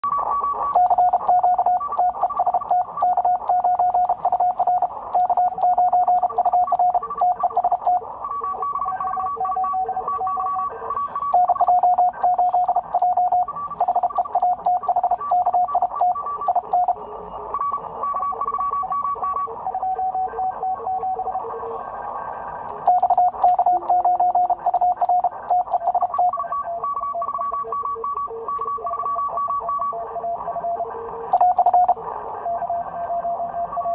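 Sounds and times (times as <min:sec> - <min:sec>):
morse code beeps: 0:00.0 - 0:21.3, 0:22.8 - 0:30.0, 0:31.3 - 0:32.8.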